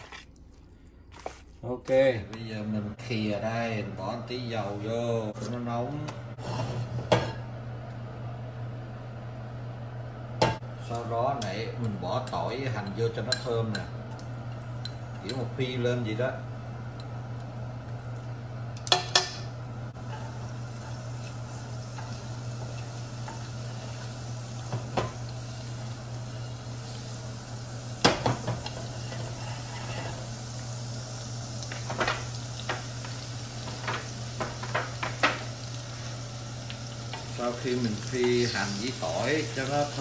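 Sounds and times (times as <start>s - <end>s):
garlic sizzling in oil: 19.9s - 40.0s.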